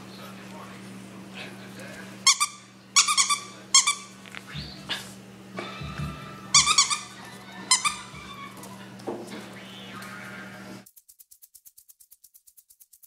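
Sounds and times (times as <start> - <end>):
low hum: 4.1 - 10.5
small animal high-pitched calls: 6.2 - 8.9.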